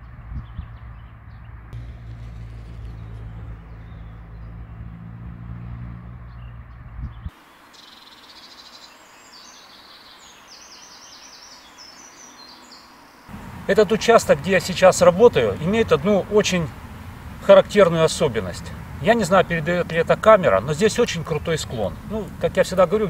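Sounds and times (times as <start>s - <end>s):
birds chirping: 0.4s - 23.0s
low steady motor hum: 1.8s - 6.4s, 13.3s - 23.0s.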